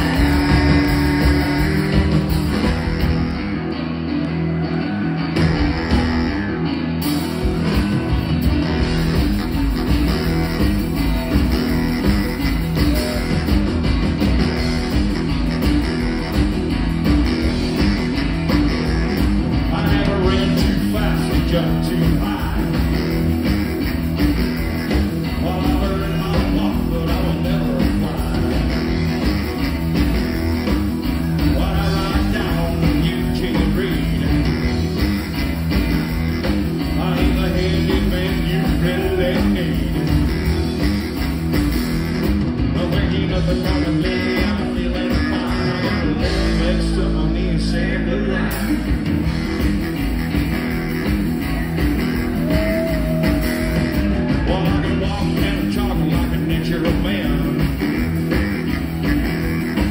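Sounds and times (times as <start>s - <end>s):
upright double bass: 0.0s - 3.6s, 5.3s - 59.9s
drums: 0.0s - 59.9s
electric guitar: 0.0s - 59.9s
saxophone: 0.0s - 59.9s
person singing lead vocal: 19.6s - 23.2s, 25.3s - 29.2s, 31.3s - 34.9s, 36.8s - 40.7s, 42.7s - 49.0s, 52.3s - 58.0s.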